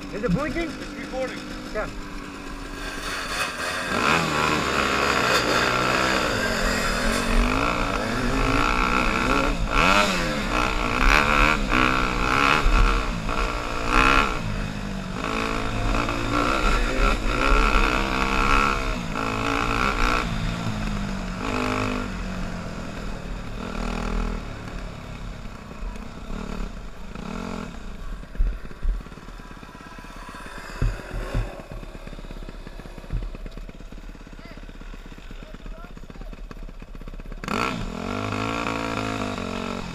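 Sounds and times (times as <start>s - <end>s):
dirt bike engine revving: 0.0s - 39.9s
sharp thumps: 30.4s - 34.0s.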